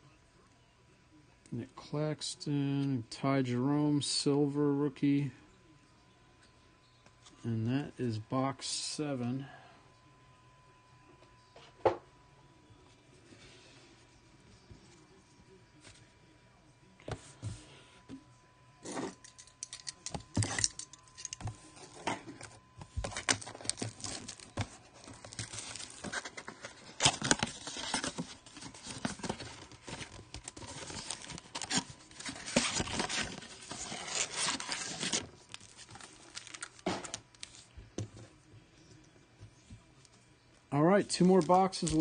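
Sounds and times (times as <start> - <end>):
packs crinkling and rustling: 22.9 - 37.7, 41.0 - 42.0.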